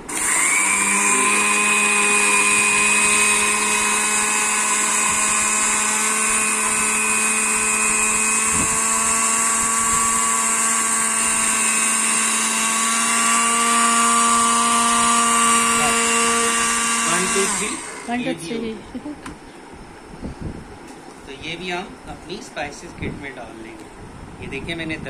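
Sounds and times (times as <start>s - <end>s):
electric spice grinder running: 0.0s - 18.3s.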